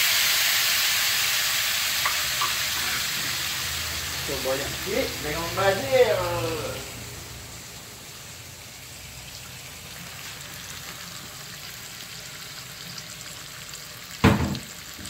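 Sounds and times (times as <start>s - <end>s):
paste sizzling in hot oil: 0.0s - 15.0s
short loud knock: 14.2s - 14.7s.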